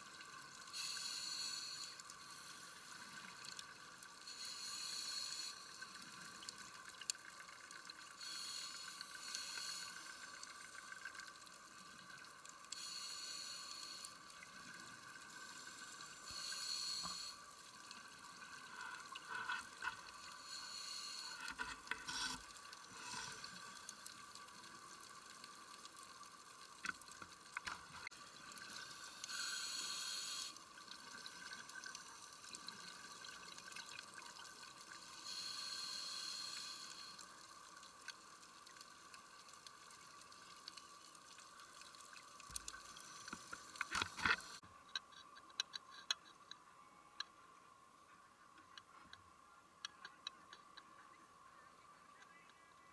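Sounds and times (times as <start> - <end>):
faint clicks: 36.4 - 46.6.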